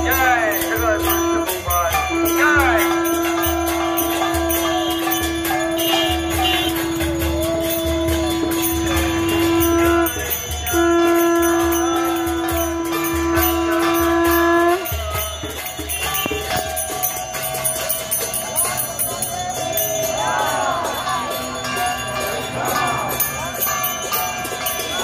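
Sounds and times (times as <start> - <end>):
long held tone: 0.0 - 15.4
drum beating: 0.0 - 20.1
hand cymbals jingling: 0.0 - 25.0.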